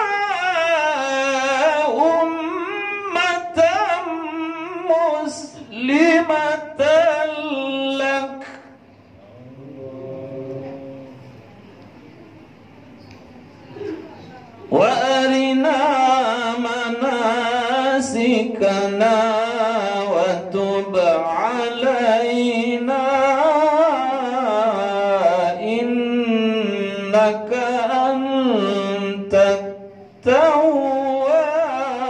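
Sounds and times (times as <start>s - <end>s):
man reciting melodically: 0.0s - 11.2s, 14.6s - 32.0s.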